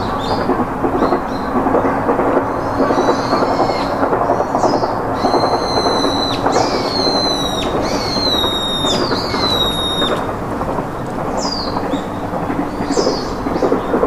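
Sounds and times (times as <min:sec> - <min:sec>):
steady crackling noise: 0:00.0 - 0:14.0.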